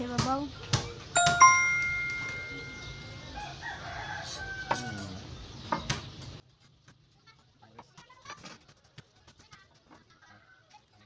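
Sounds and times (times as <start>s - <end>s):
rooster crowing: 3.3s - 5.2s.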